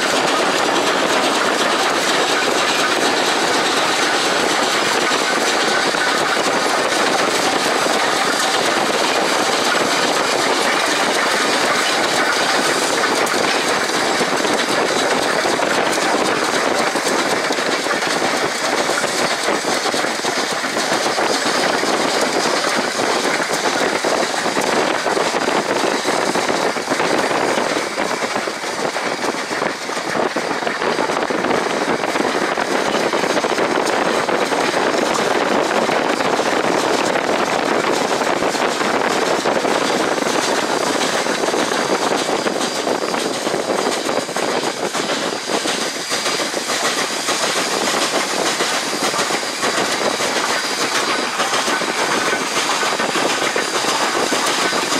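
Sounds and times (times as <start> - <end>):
car road noise: 0.0 - 22.4
steam locomotive exhaust rushing: 0.0 - 54.9.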